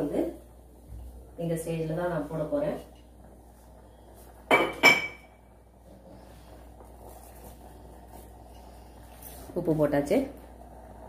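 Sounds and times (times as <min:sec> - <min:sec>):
pot of rice bubbling: 0:00.0 - 0:11.0.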